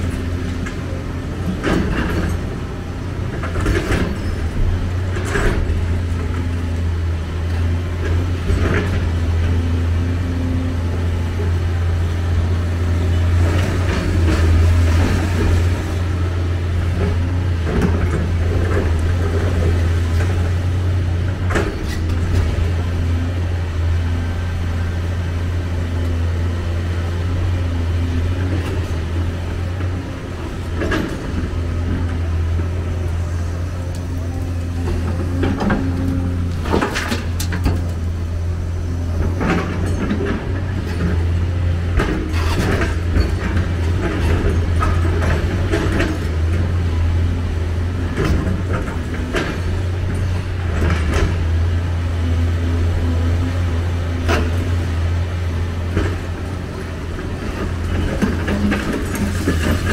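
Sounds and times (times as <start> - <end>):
excavator diesel engine humming: 0.0 - 59.9
bucket and rubble clattering: 57.6 - 59.9.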